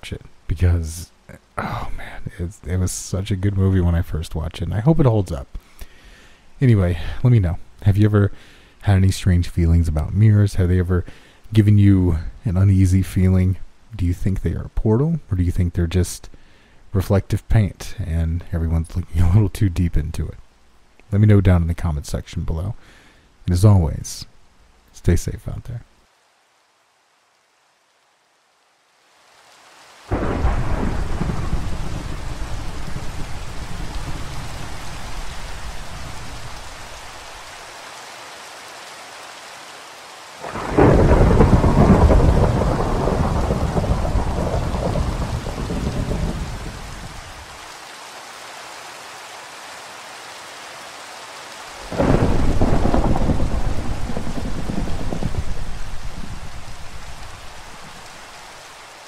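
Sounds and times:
steady rain: 0:00.0 - 0:59.0
thunder rolling: 0:30.1 - 0:36.5, 0:40.4 - 0:47.2, 0:51.9 - 0:58.1.

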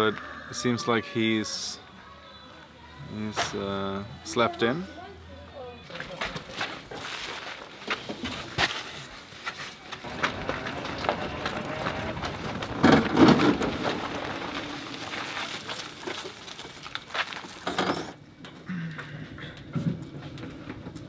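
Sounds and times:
scuffing footsteps: 0:05.9 - 0:12.8
rolling tyres: 0:06.4 - 0:21.0.

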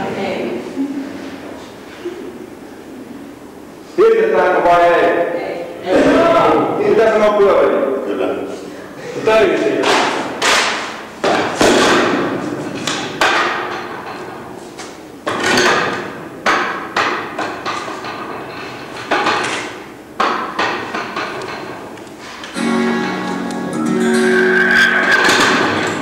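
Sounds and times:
loud echoing strikes: 0:09.8 - 0:12.5, 0:22.6 - 0:26.0
plucked guitar music: 0:22.6 - 0:26.0.

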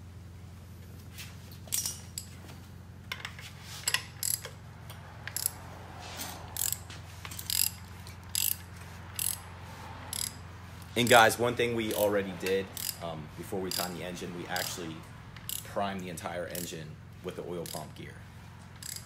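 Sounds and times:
steady low hum: 0:00.0 - 0:19.0
socket ratchet clicking: 0:03.9 - 0:05.6, 0:06.5 - 0:09.4, 0:10.1 - 0:10.4, 0:11.9 - 0:13.0, 0:13.7 - 0:15.7, 0:18.7 - 0:19.0.

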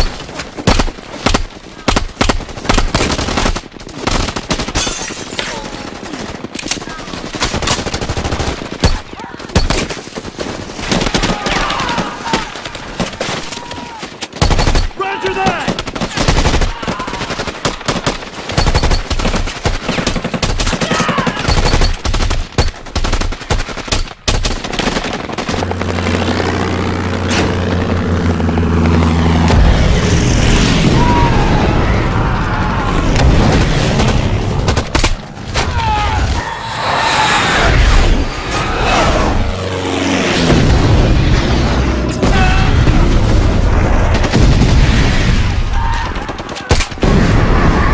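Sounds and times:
rifle and machine-gun fire: 0:00.0 - 0:28.3, 0:33.0 - 0:35.5, 0:40.0 - 0:47.9
men shouting: 0:15.0 - 0:15.8
low drone: 0:25.5 - 0:44.1.

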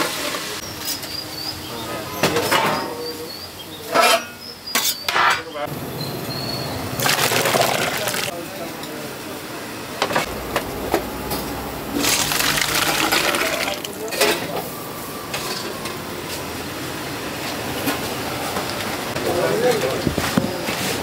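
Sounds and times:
liquid splashing into pots: 0:07.0 - 0:08.4, 0:11.9 - 0:14.4.

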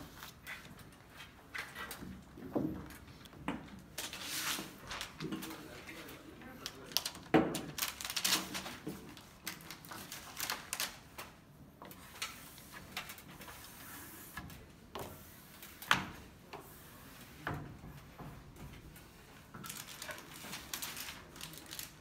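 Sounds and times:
plastic film crackling: 0:04.0 - 0:11.4, 0:19.6 - 0:22.0.

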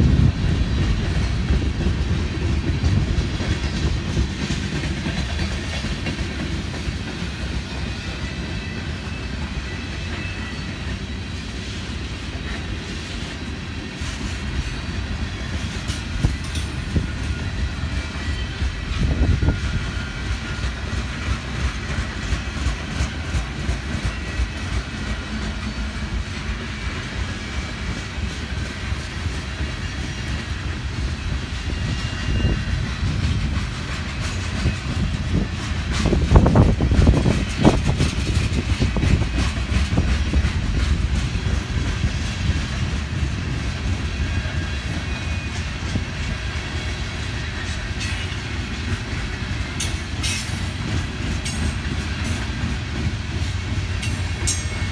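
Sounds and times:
freight train rumbling past: 0:00.0 - 0:54.9
train clatter: 0:00.0 - 0:54.9
wheels clicking over rail joints: 0:00.1 - 0:09.5.

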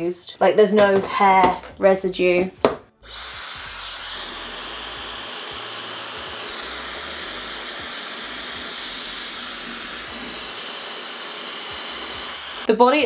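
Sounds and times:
hairdryer running: 0:03.0 - 0:12.7.

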